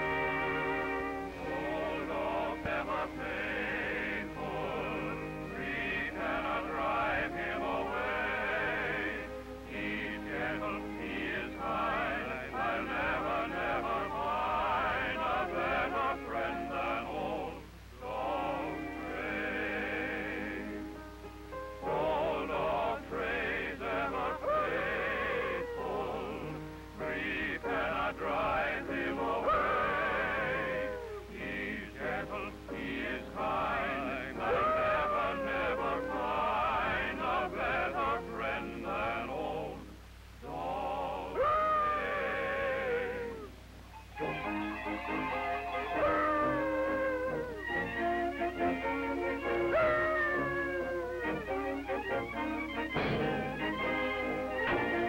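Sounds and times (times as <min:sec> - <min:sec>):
operatic cartoon music: 0:44.2 - 0:55.0.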